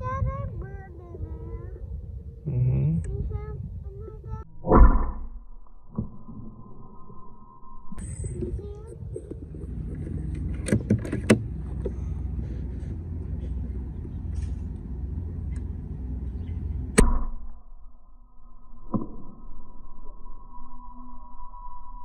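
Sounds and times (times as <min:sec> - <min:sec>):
steady low rumble: 0:00.0 - 0:18.8.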